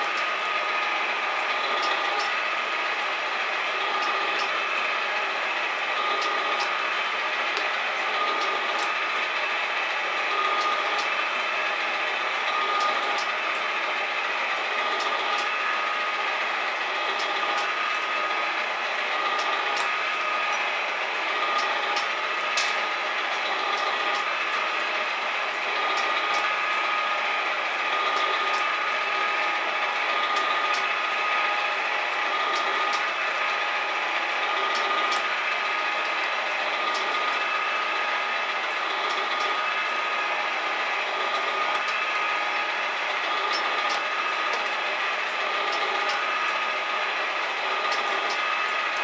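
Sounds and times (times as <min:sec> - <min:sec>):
metal shaper running: 0:00.0 - 0:49.0.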